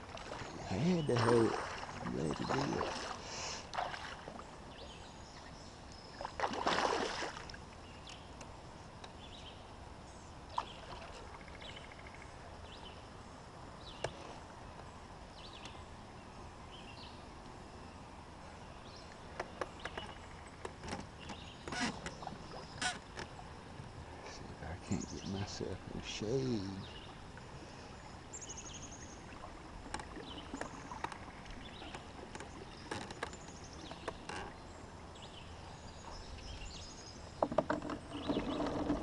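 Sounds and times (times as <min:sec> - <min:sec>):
paddle dipping in water: 0:00.0 - 0:08.5, 0:10.5 - 0:11.6, 0:19.2 - 0:24.0, 0:26.4 - 0:35.4, 0:36.0 - 0:39.0
water sloshing against hull: 0:00.0 - 0:08.6, 0:10.5 - 0:12.1, 0:19.2 - 0:24.3, 0:26.5 - 0:39.0.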